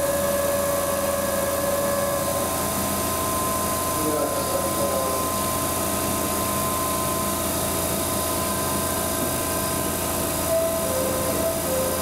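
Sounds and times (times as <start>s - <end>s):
train mechanical hum: 0.0s - 12.0s
thin whining tones: 10.4s - 12.0s.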